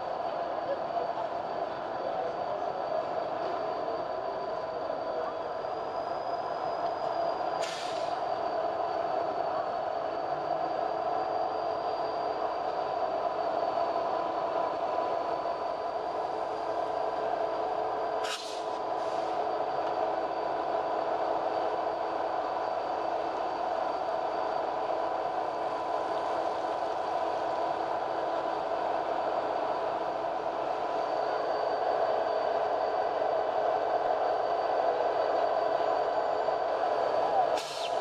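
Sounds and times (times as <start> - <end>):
train rolling on rails: 0.0 - 38.0
whining wheels on rails: 0.0 - 38.0
short hiss: 7.6 - 8.2, 18.2 - 19.2, 37.6 - 38.0.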